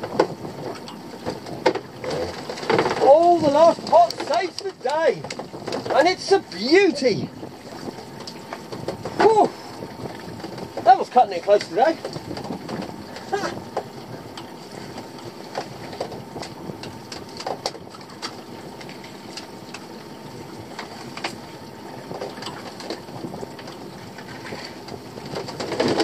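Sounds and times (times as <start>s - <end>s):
boat engine idling: 0.0s - 26.0s.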